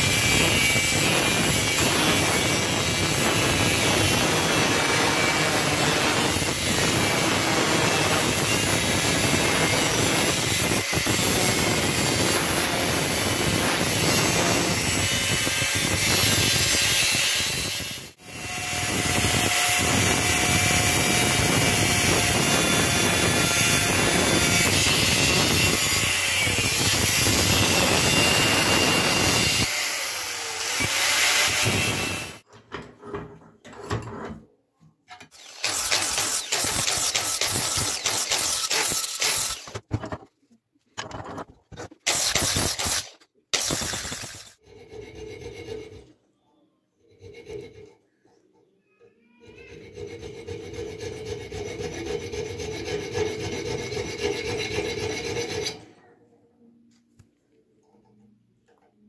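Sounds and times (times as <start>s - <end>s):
angle grinder cutting steel: 0.0s - 32.4s, 35.3s - 39.8s, 42.0s - 46.0s.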